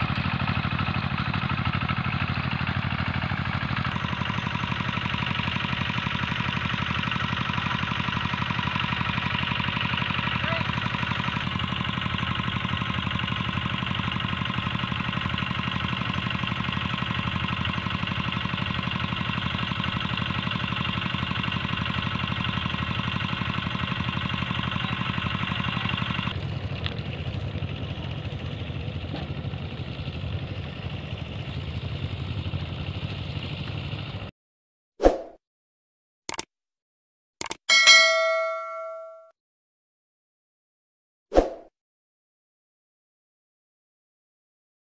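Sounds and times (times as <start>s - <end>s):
single-cylinder tractor engine running: 0.0s - 34.3s.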